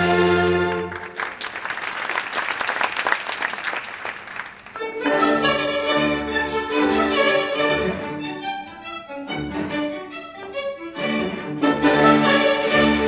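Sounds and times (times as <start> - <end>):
orchestral string music: 0.0 - 1.2, 4.7 - 13.0
audience applauding: 0.6 - 4.8.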